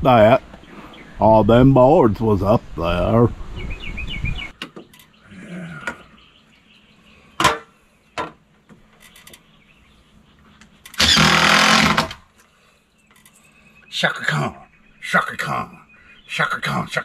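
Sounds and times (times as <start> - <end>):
cordless drill driving a screw: 11.0 - 12.2.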